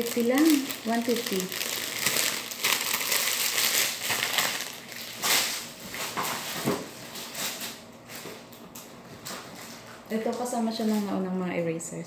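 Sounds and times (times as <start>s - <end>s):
paper bag rustling: 0.0s - 8.5s
plastic packaging crinkling: 0.0s - 11.2s.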